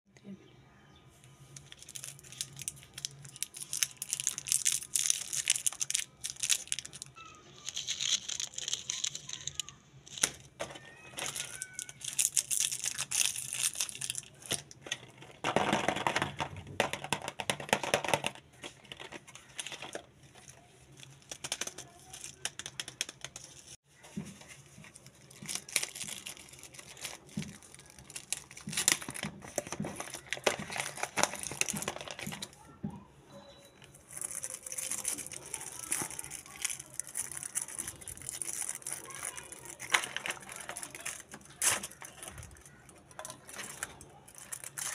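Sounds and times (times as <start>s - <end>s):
plastic and foil wrappers crinkling: 1.3s - 32.8s, 33.8s - 44.9s.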